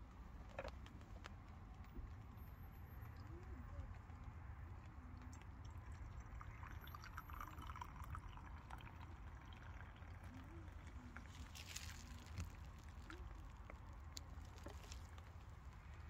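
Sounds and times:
tea trickling into a mug: 4.9s - 15.2s.

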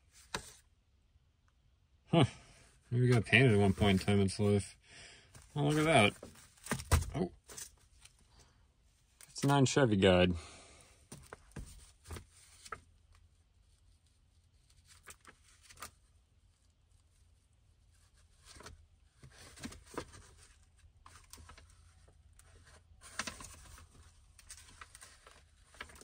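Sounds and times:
paper booklet rustling and clicks: 0.1s - 0.6s, 3.1s - 4.5s, 5.4s - 8.2s, 11.1s - 14.0s, 14.6s - 16.1s, 18.0s - 26.0s.

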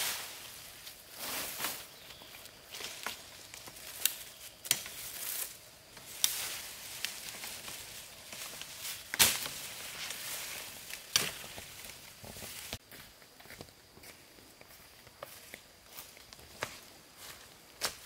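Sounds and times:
fern fronds rustling: 0.0s - 12.9s
fern stems snapping: 2.8s - 12.8s.

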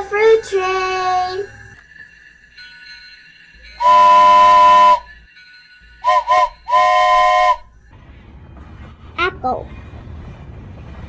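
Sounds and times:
steam hissing: 0.0s - 7.7s
steam locomotive whistle: 3.7s - 5.2s, 6.0s - 7.8s.

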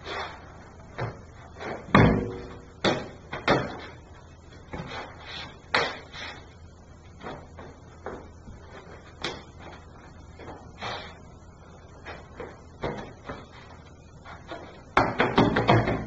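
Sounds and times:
sneakers stamping on concrete: 7.2s - 10.7s, 12.0s - 16.0s.

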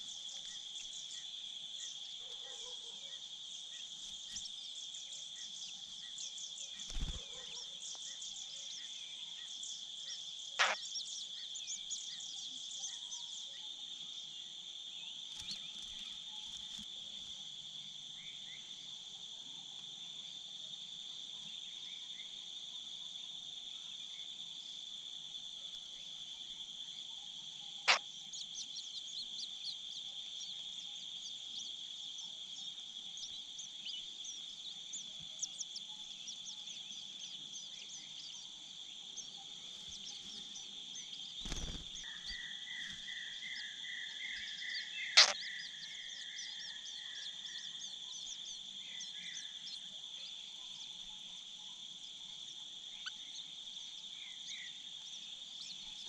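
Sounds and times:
high-pitched insect drone: 10.6s - 12.3s, 27.8s - 56.0s.

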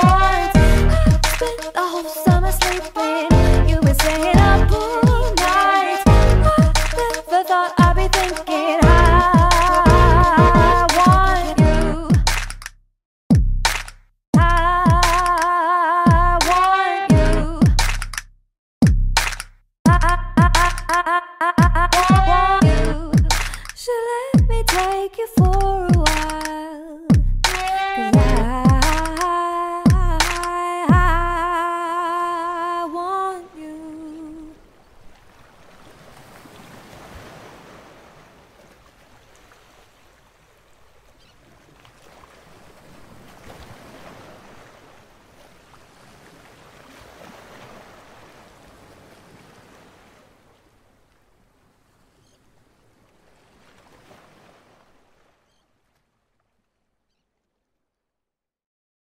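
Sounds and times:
faint ocean surf: 0.0s - 11.6s, 31.6s - 56.1s.

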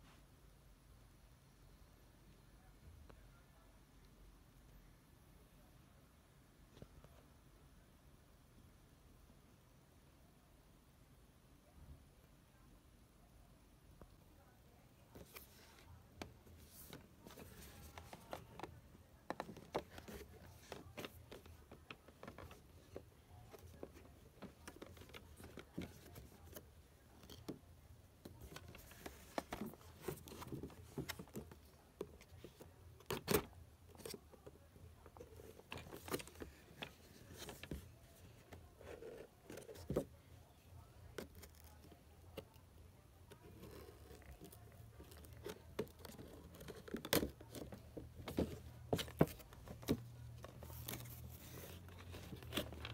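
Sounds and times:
cardboard box being handled: 15.2s - 27.6s, 28.2s - 40.2s, 43.3s - 52.9s.

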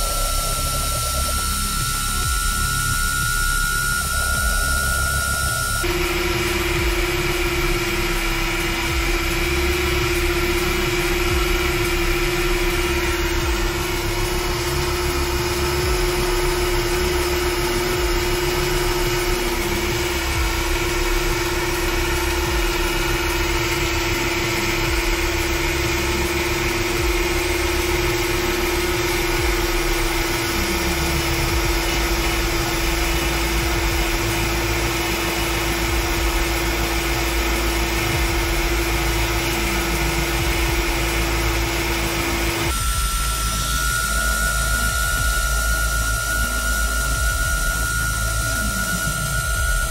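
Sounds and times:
router spindle whine: 0.0s - 49.9s.

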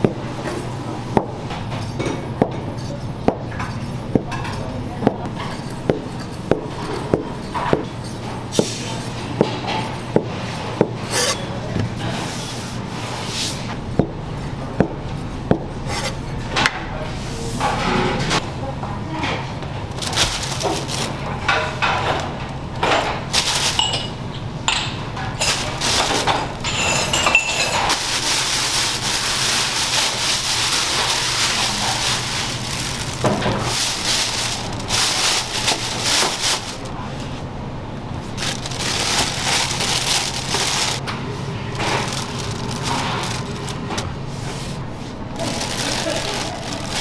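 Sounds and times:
dishes and utensils clinking: 20.6s - 28.5s.

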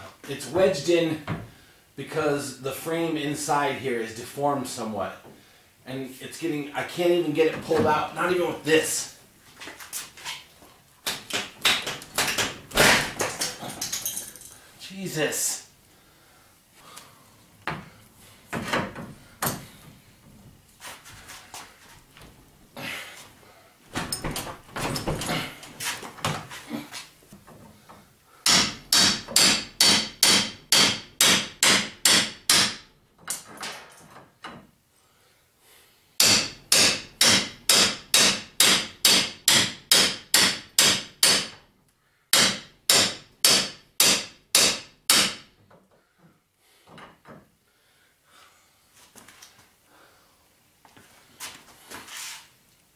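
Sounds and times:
tools clanking: 12.7s - 14.6s, 23.9s - 26.4s
hammer striking metal wrench: 28.5s - 32.8s.

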